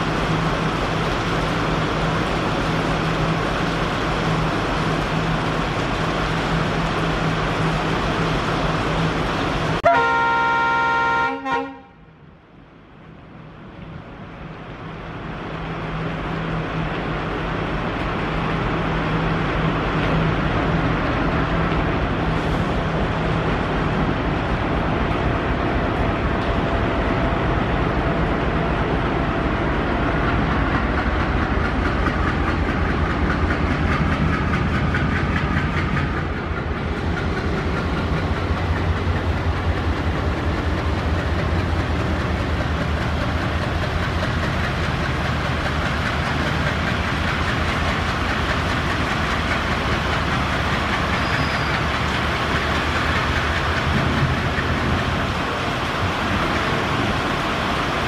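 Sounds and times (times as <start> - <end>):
diesel locomotive engine running: 0.0 - 58.0
locomotive horn: 9.8 - 12.0.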